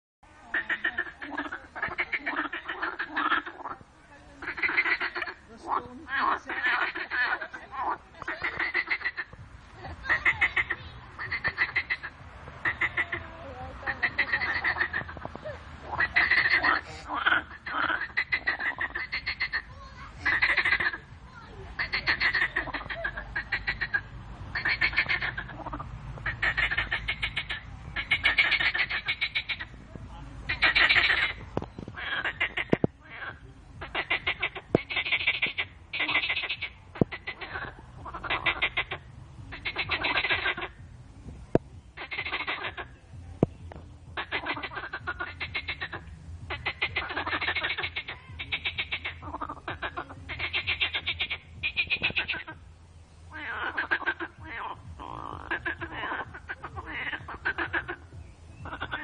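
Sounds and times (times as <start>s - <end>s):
frogs calling in chorus: 0.5s - 21.1s, 21.8s - 29.8s, 30.5s - 40.8s, 41.5s - 52.7s, 53.3s - 59.0s.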